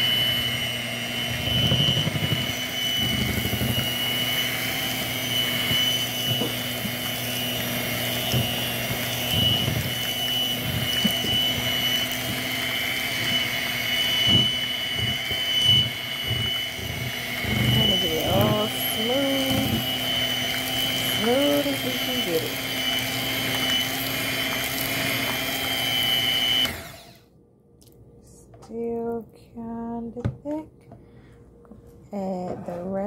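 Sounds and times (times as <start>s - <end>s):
electric hand mixer whining: 0.0s - 27.3s
low thuds of beaters in mash: 1.3s - 21.7s.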